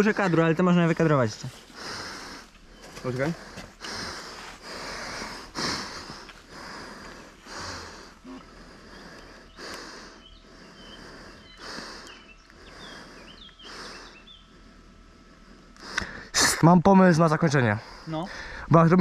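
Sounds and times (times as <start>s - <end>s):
person breathing: 1.6s - 16.4s, 17.8s - 18.8s
faint bird chirps: 8.2s - 14.8s.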